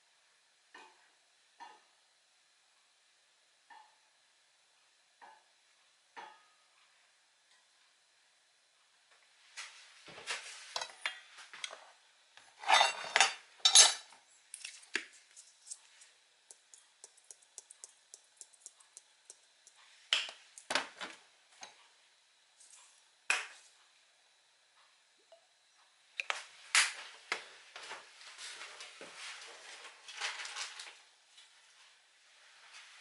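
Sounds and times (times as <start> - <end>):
shaker ticking over steel bowl: 14.5 - 20.7.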